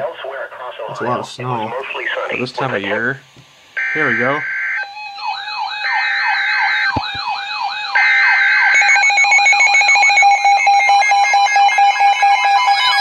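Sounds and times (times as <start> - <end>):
weather radio siren sweeping: 3.8 - 13.0.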